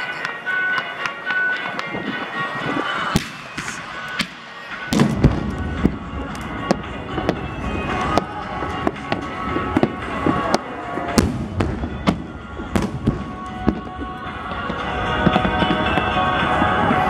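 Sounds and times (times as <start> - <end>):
music: 0.0 - 17.0
firework bangs and crackles: 0.2 - 17.0
heavy firework boom: 4.9 - 10.5, 11.2 - 13.8.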